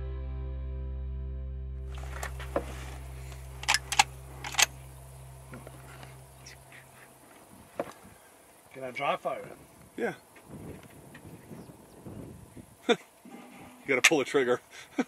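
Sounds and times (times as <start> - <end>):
background music low notes: 0.0 - 6.4
insects buzzing: 1.9 - 15.0
rifle action metallic clicks: 3.6 - 4.8.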